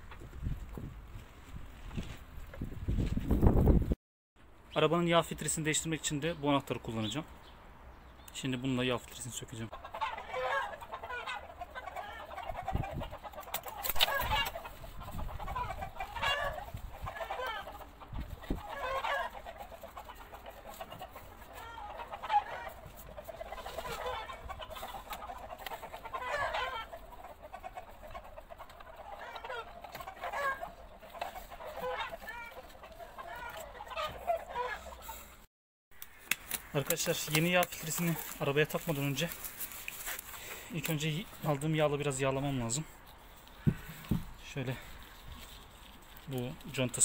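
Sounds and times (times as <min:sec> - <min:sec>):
chickens clucking: 0:08.4 - 0:35.5, 0:36.7 - 0:47.0.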